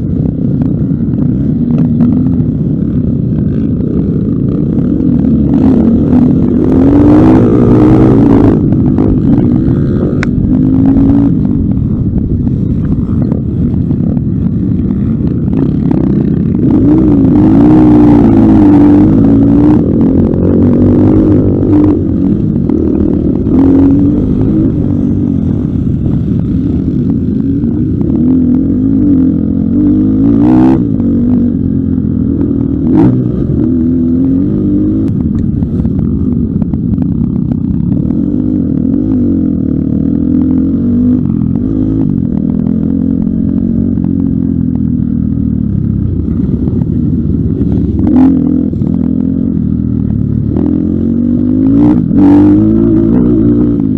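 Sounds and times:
dirt bike engine revving: 0:00.0 - 0:36.8.

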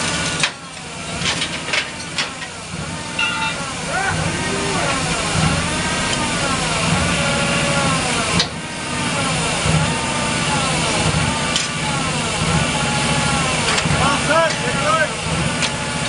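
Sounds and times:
heavy equipment engine revving: 0:00.0 - 0:16.0
sharp metallic clank: 0:03.2 - 0:03.7.

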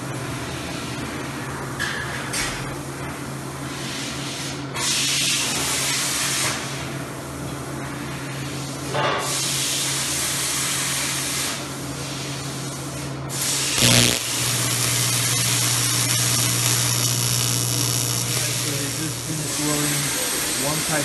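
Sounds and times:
welding arc hissing and buzzing: 0:13.4 - 0:21.0
electrical hum: 0:13.8 - 0:21.0.

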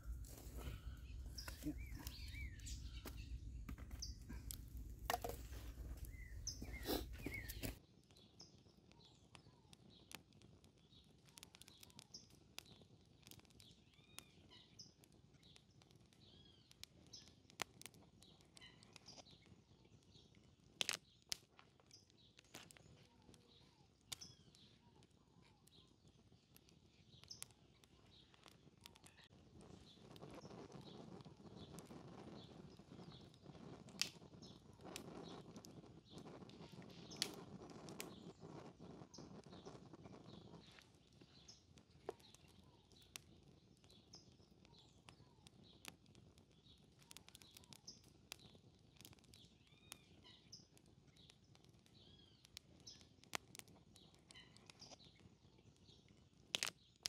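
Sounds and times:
heavy low rumble: 0:00.0 - 0:07.2
small birds chirping: 0:00.0 - 0:57.0
wood fire crackling: 0:00.0 - 0:57.0.

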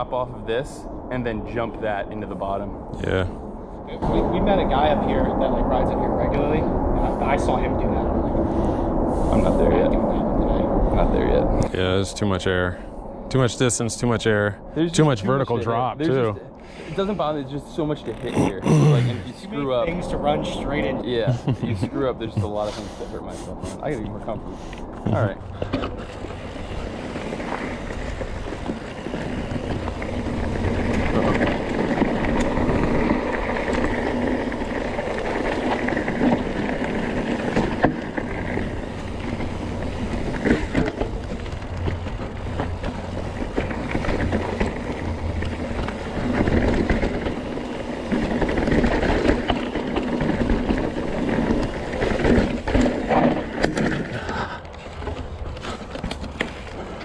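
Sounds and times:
wind buffeting microphone: 0:00.0 - 0:18.1, 0:19.0 - 0:54.7
bike rattling and clattering: 0:21.9 - 0:57.0
bike tyres rumbling over rocks: 0:24.2 - 0:57.0.

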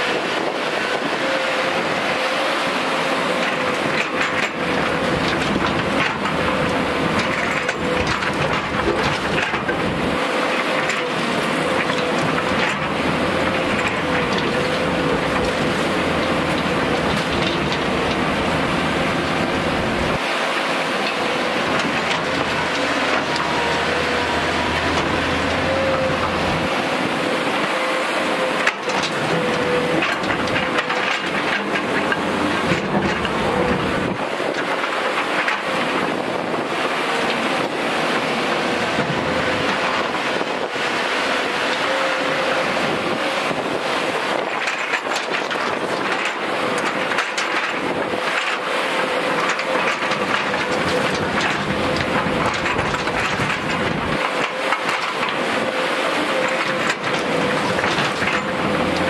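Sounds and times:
hydraulic whine: 0:00.0 - 0:45.0
excavator diesel engine running: 0:00.0 - 0:59.0.

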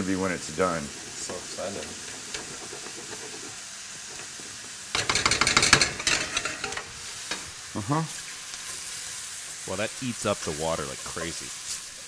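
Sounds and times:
whisk scraping and tapping pan: 0:00.0 - 0:07.4
frying sizzle: 0:00.0 - 0:12.0.

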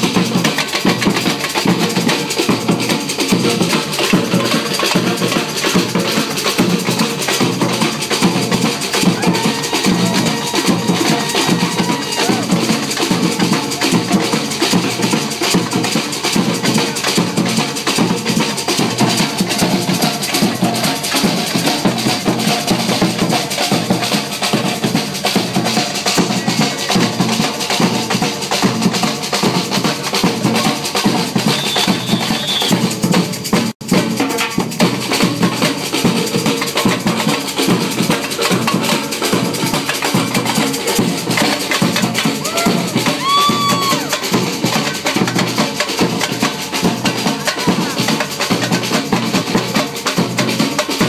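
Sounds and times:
bass drums: 0:00.0 - 0:51.0
snare drums: 0:00.0 - 0:51.0.

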